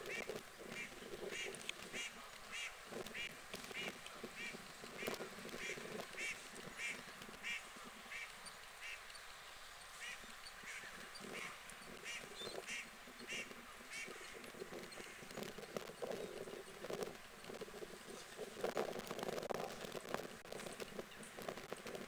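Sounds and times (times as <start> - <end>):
faint background noise: 0.0 - 22.0
water bird calling: 9.8 - 15.4.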